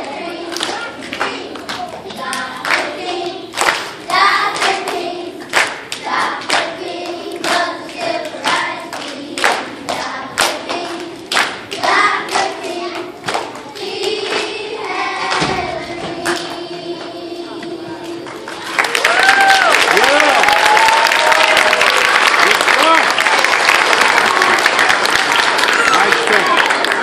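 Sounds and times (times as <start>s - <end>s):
children's choir singing: 0.0s - 18.8s
hands clapping a beat: 0.5s - 15.6s, 16.2s - 17.2s, 18.0s - 27.0s.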